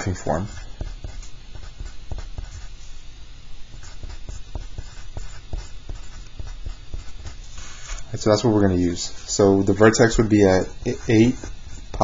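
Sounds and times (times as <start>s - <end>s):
pencil writing on paper: 0.1s - 2.8s, 3.8s - 7.8s, 10.6s - 12.0s.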